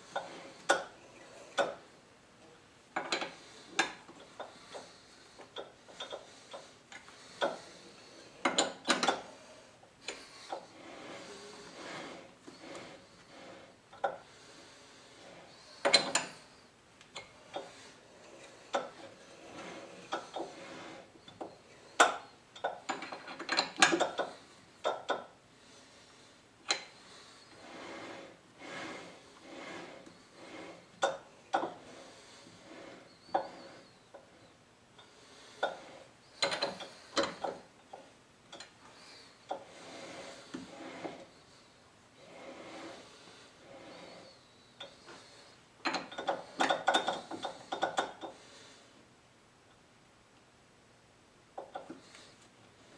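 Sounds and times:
lathe chuck metallic clicks and knocks: 3.0s - 4.9s, 8.4s - 9.3s, 15.8s - 16.3s, 21.3s - 25.3s, 36.4s - 38.8s, 45.8s - 48.4s
lathe chuck metallic clicks: 36.4s - 37.6s.

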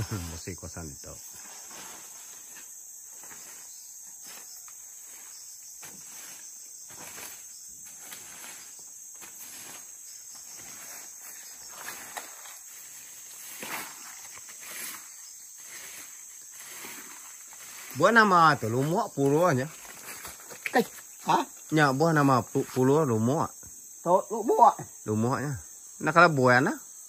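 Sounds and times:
insects chirping: 0.0s - 27.0s
soft footsteps and rustles: 1.3s - 21.3s.

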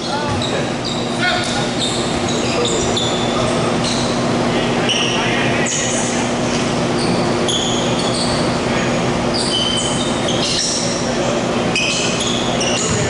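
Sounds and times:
shoes squeaking on hardwood: 11.7s - 13.0s.

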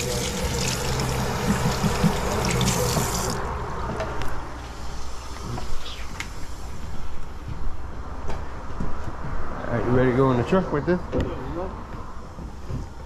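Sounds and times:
tap water running into sink: 0.0s - 3.4s.

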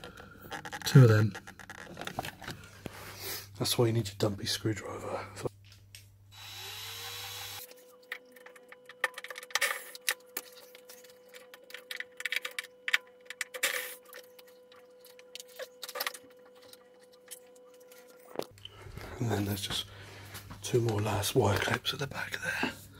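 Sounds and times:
cordless drill driving screw: 6.4s - 7.7s.

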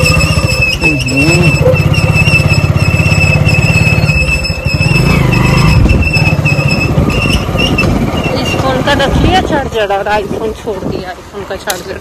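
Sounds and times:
high-pitched engine whine: 0.0s - 9.3s
motorcycle engine rumble: 0.0s - 12.0s.

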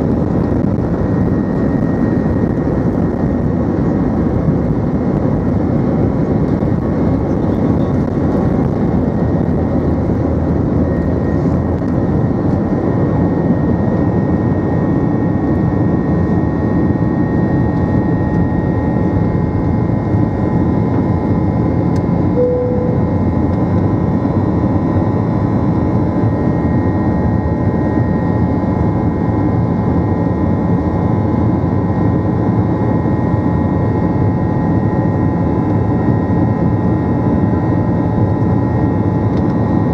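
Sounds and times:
jet engine roar in cabin: 0.0s - 39.9s
faint whining tones: 7.2s - 24.4s
short cabin tone: 22.3s - 23.8s.

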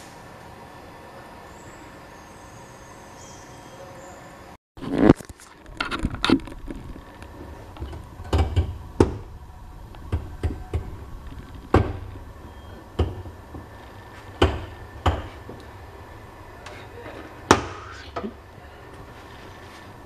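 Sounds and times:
low hum: 4.8s - 20.0s.

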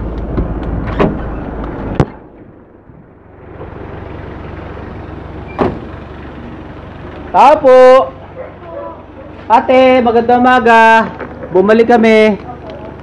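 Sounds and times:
outdoor noise: 0.0s - 13.0s
vehicle engine idling: 0.0s - 13.0s.

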